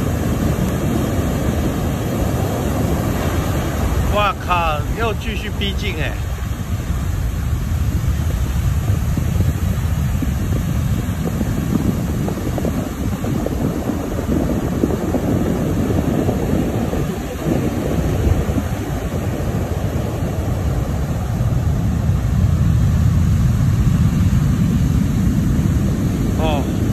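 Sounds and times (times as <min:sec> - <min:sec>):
surf breaking on stony beach: 0:00.0 - 0:26.9
wind buffeting microphone: 0:00.0 - 0:26.9.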